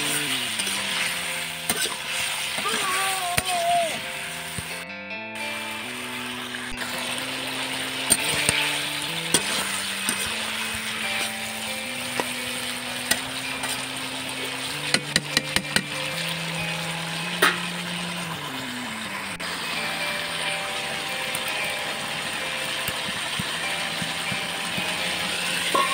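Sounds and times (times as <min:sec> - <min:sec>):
curry sizzling and simmering: 0:00.0 - 0:04.8, 0:05.4 - 0:25.9
soft background music: 0:00.0 - 0:25.9
metal spatula tapping pan: 0:08.1 - 0:11.3, 0:14.8 - 0:16.0, 0:22.8 - 0:25.9.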